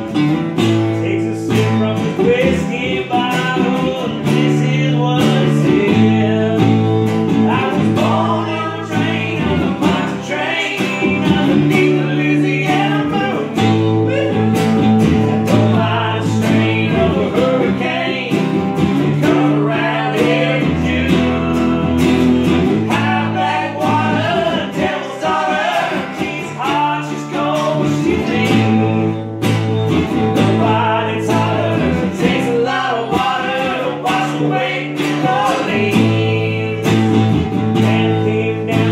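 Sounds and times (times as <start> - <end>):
acoustic guitars strumming: 0.0 - 38.9
man singing: 0.8 - 29.3, 30.3 - 38.9.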